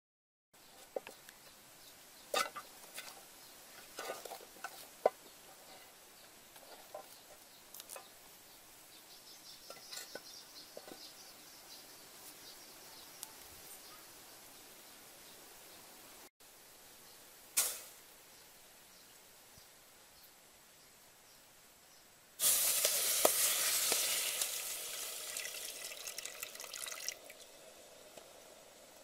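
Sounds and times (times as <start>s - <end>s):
faint bird chirping: 0.6s - 22.4s.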